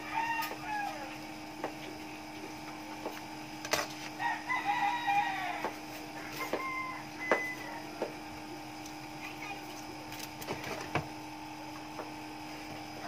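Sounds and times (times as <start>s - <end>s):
rooster crowing: 0.0s - 1.2s, 4.2s - 8.2s
steady low hum: 0.0s - 13.0s.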